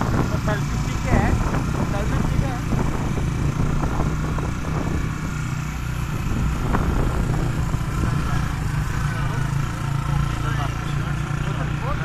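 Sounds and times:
motorcycle engines running: 0.0s - 12.0s
wind and road noise: 0.0s - 12.0s.

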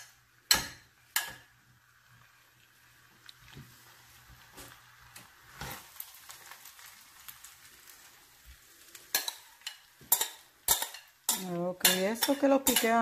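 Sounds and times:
faint sizzling: 0.0s - 13.0s
spoon scraping frying pan: 9.0s - 13.0s
metal clacks on pan: 9.1s - 13.0s.

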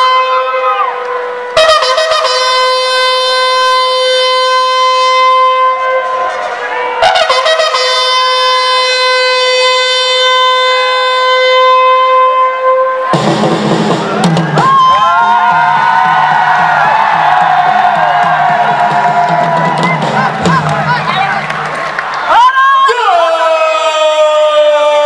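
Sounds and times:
long steady ceremonial call: 0.0s - 13.2s.

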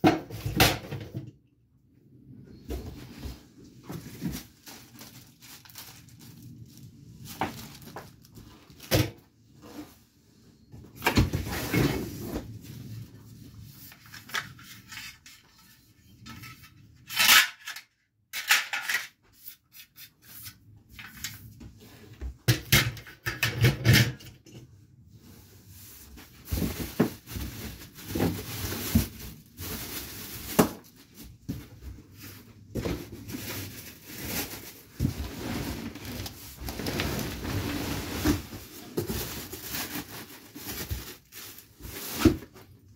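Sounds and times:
packaging rustling: 3.8s - 8.9s, 32.2s - 42.7s.

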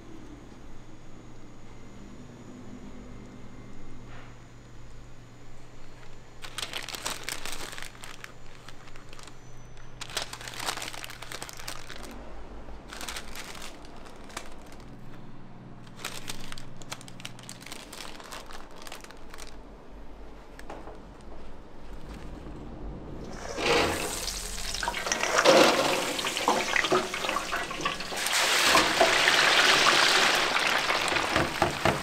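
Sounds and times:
low steady hum: 0.0s - 31.3s
packaging crinkling: 6.0s - 12.2s, 12.8s - 15.2s, 15.8s - 19.7s, 23.3s - 32.0s.

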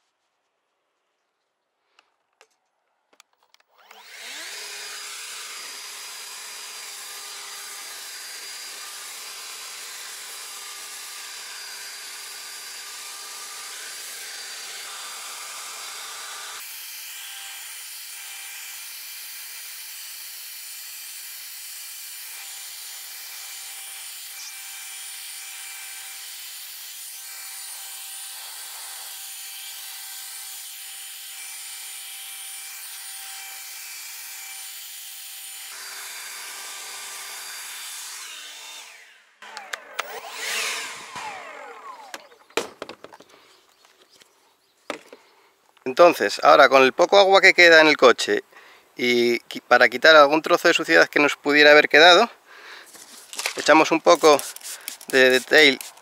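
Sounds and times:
leaf blower running with fan whine: 3.7s - 16.7s, 35.7s - 37.1s, 39.4s - 42.6s
clicks: 39.4s - 40.4s.

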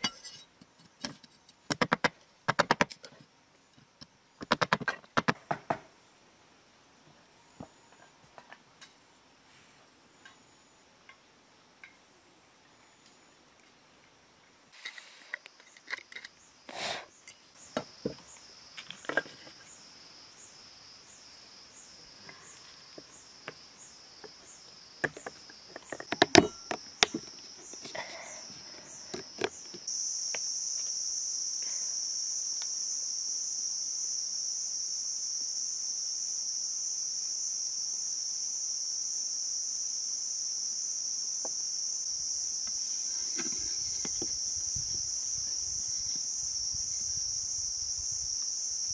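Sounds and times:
faint pulsing insect chirring: 0.0s - 48.9s
high-pitched insect drone: 15.3s - 48.9s.

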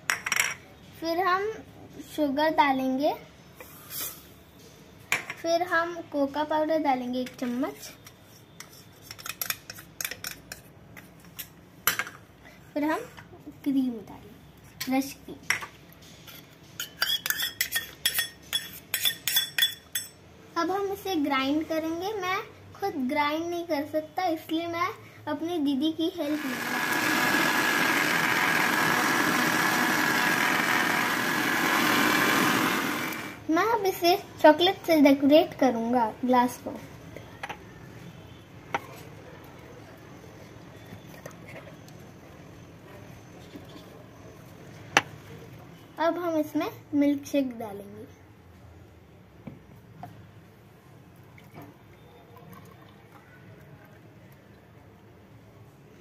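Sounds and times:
mixer grinder motor whine: 26.3s - 33.4s
milkshake pouring and dripping: 51.2s - 54.7s.

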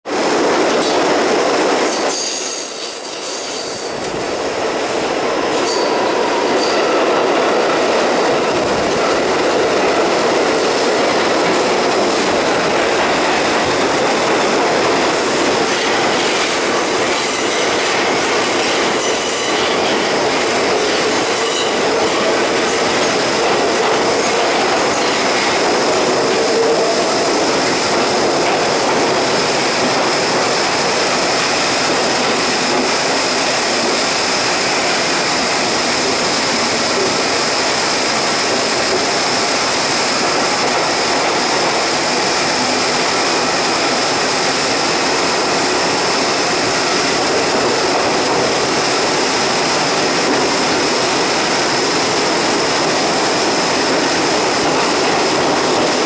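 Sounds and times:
subway train wheels on rail: 0.0s - 56.0s
high-pitched wheel squeal: 1.9s - 4.5s, 5.6s - 6.8s.

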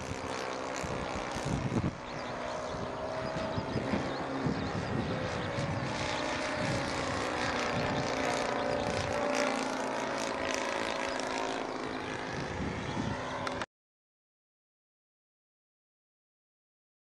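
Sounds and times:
model plane motor buzzing: 0.0s - 13.6s.

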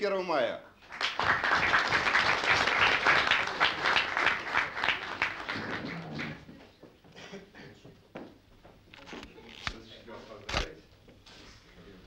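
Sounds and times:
audience applauding: 0.8s - 6.6s.

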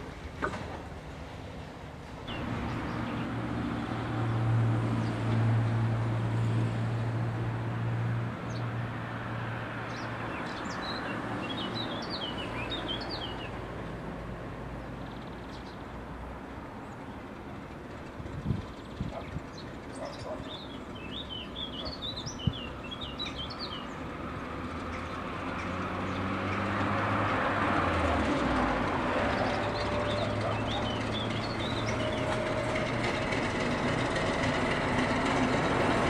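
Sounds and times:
distant diesel hum: 0.0s - 36.0s
locomotive diesel engine drone: 0.0s - 36.0s
birds chirping: 2.3s - 3.9s, 9.8s - 13.6s, 18.6s - 24.1s, 29.2s - 33.4s.

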